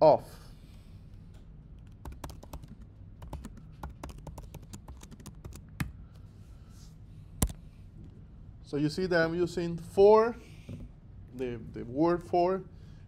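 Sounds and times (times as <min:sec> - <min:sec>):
computer keyboard typing: 0:01.8 - 0:05.9.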